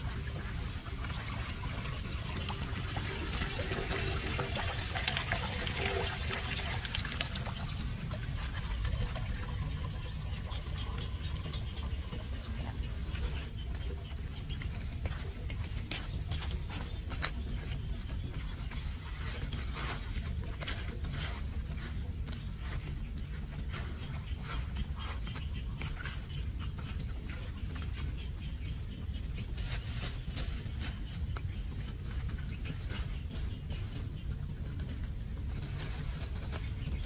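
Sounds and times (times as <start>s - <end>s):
water trickling and running: 0.0s - 17.3s
steady low rumble: 0.0s - 37.0s.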